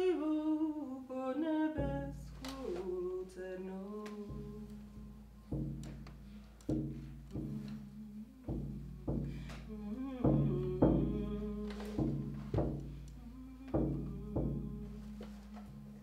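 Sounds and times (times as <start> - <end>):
woman singing: 0.0 - 6.0, 7.2 - 16.0
frame drum deep booms: 4.2 - 16.0.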